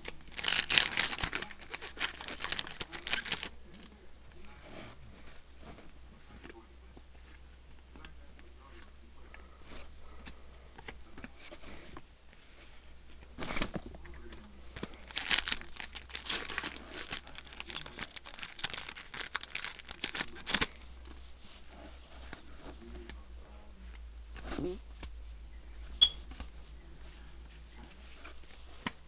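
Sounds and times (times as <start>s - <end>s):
foil wrapper crinkling and tearing: 0.0s - 4.0s, 14.8s - 20.9s.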